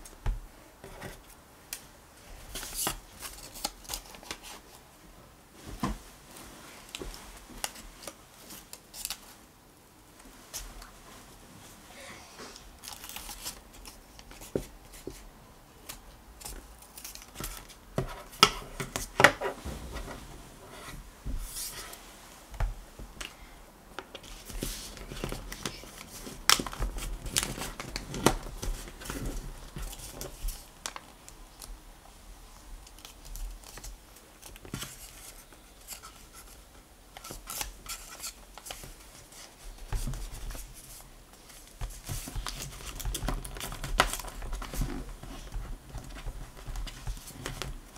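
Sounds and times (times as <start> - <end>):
paper rustling and creasing: 12.6 - 22.2, 24.0 - 31.8, 32.8 - 47.9.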